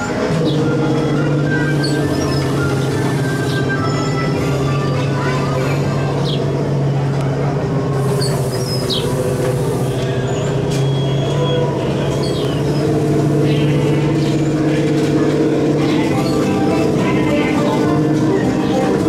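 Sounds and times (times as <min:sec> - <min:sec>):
small tractor humming: 0:00.0 - 0:19.0.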